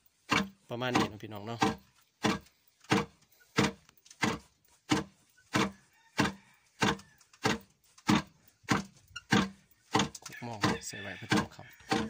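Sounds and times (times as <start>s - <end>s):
wooden pestle thudding: 0.2s - 12.0s.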